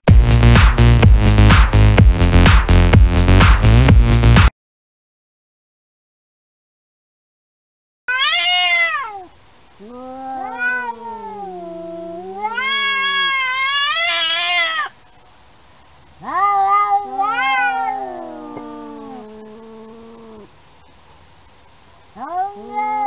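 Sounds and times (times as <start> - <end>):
cats yowling: 8.1 - 15.0, 16.2 - 20.5, 22.1 - 23.0.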